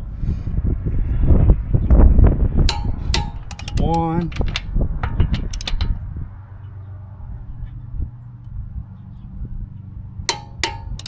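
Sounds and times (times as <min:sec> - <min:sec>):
torque wrench clicks: 0:02.7 - 0:06.0
wrench ratcheting: 0:02.7 - 0:06.0, 0:10.3 - 0:11.0.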